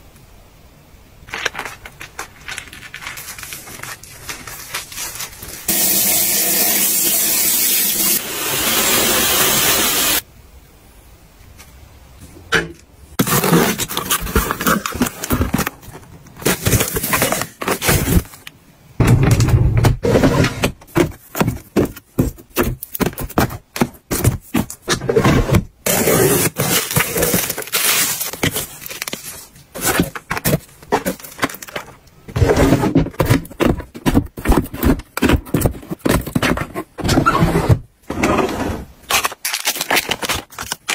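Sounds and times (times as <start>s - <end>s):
tap water running: 5.7s - 10.2s
boxes knocking into plastic drawers: 13.2s - 18.4s, 19.0s - 29.1s, 29.7s - 38.8s.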